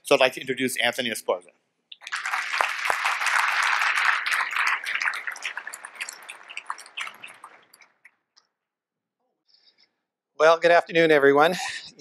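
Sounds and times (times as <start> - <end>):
audience applauding: 2.0 - 8.1.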